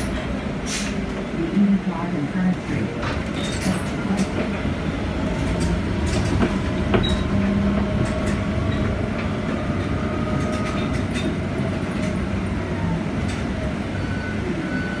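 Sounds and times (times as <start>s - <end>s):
bus road rumble: 0.0s - 15.0s
rattles and clicks: 5.3s - 7.4s.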